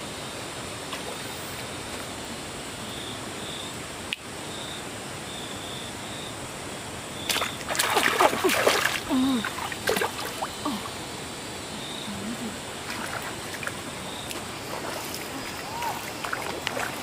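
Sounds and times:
water splashing and sloshing: 7.3s - 11.3s, 12.2s - 17.0s
running water rushing: 7.3s - 17.0s.

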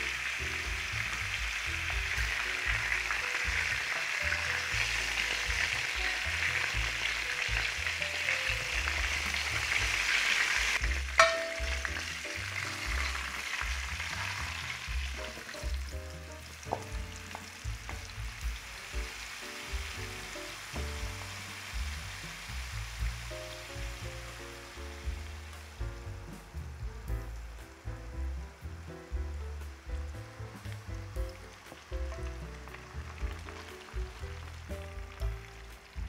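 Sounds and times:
food sizzling in a hot pan: 0.0s - 36.0s
sharp metal clank: 11.2s - 11.9s.

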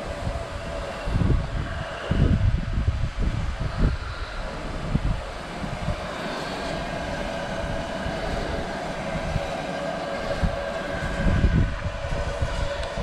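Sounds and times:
soft steam hiss: 0.0s - 13.0s
steam locomotive humming drone: 0.0s - 13.0s
wind buffeting microphone: 0.0s - 13.0s.

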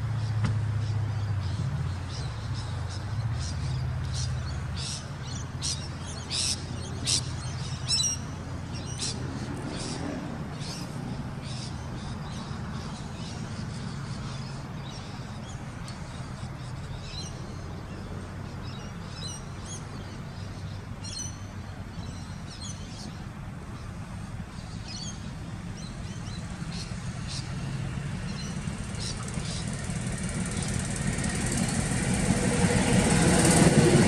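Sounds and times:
birds chirping: 0.2s - 34.0s
steady low drone: 23.6s - 34.0s.

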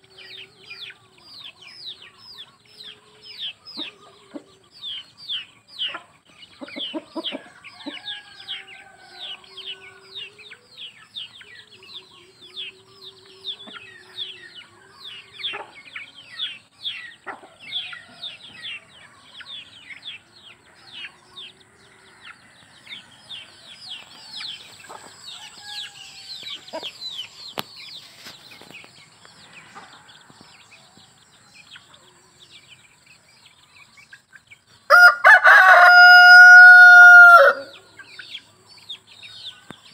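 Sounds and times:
chicks peeping: 0.0s - 39.9s
hen clucking: 0.1s - 10.6s, 11.3s - 20.2s.

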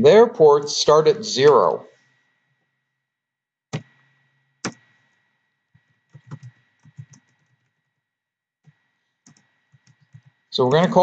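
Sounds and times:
keyboard keystrokes: 6.1s - 7.5s.

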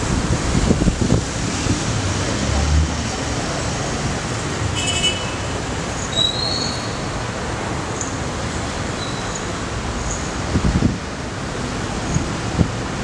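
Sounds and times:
street traffic noise: 0.0s - 13.0s.

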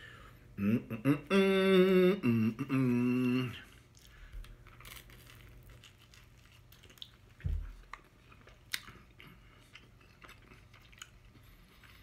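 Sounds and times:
person chewing a sandwich: 3.6s - 12.0s
toasted bread crunching: 3.9s - 9.2s.

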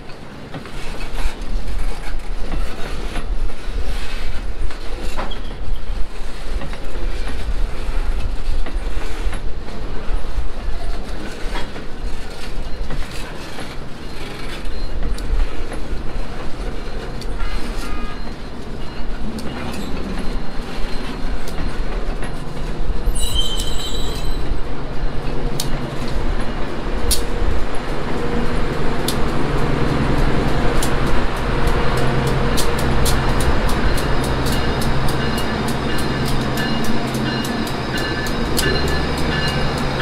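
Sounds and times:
train rumbling: 0.0s - 40.0s
high metallic squeal: 23.0s - 24.5s.

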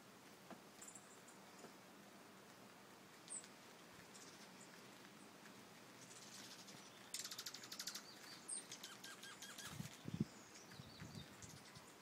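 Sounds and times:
birds trilling and chipping: 3.2s - 12.0s.

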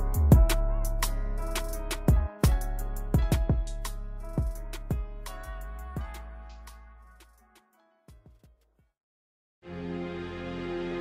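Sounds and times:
slow r and b instrumental: 0.0s - 8.5s.

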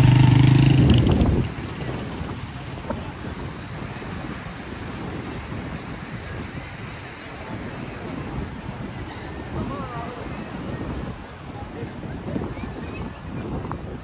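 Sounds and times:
sea surf: 0.0s - 14.0s
wind: 0.0s - 14.0s.

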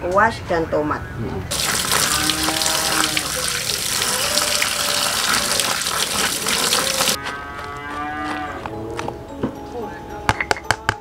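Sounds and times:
hands rinsing vegetables: 1.5s - 7.2s
tap water running into colander: 1.5s - 7.2s.

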